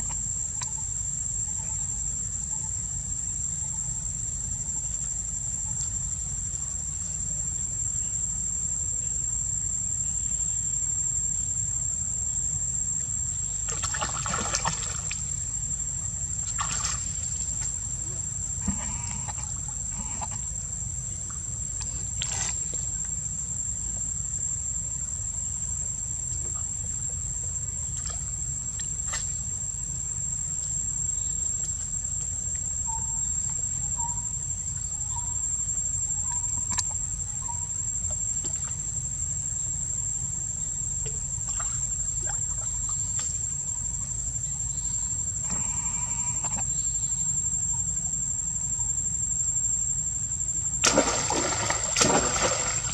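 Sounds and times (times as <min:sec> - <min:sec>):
insects droning: 0:00.0 - 0:52.9.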